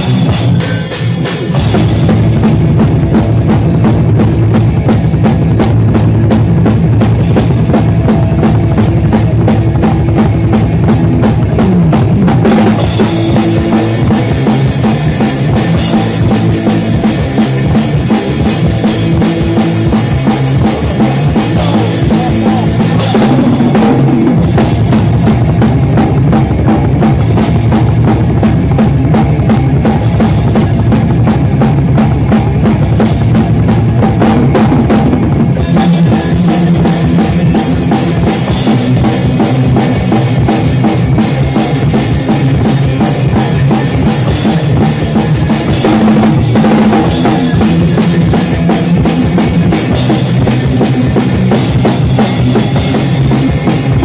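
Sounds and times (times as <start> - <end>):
heavy metal band playing live: 0.0 - 54.0.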